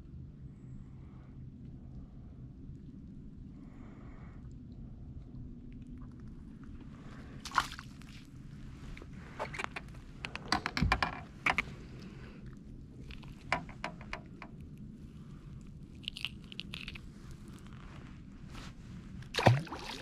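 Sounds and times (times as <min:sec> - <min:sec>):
fishing gear clicks and rustles: 0:09.0 - 0:12.2
fish splashing into water: 0:19.4 - 0:20.0.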